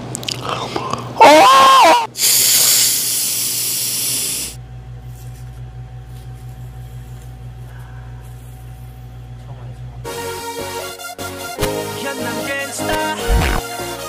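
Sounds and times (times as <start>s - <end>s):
aerosol spray hiss: 2.2s - 4.6s
steady low hum: 4.5s - 10.1s.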